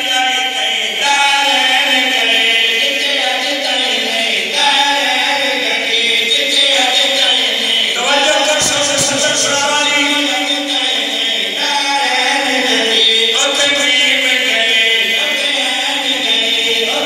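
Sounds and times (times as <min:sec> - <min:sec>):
men chanting into microphone: 0:00.0 - 0:17.0.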